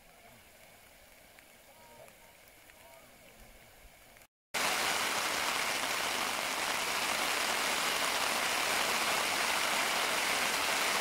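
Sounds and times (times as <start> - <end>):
rain on a tarp: 0.0 - 11.0.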